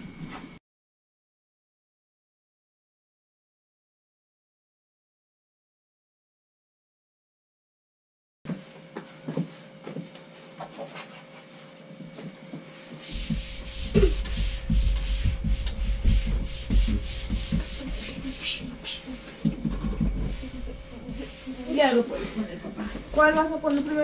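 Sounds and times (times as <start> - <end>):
fabric rustling and rubbing: 13.1 - 19.0
low rumble: 13.2 - 21.6.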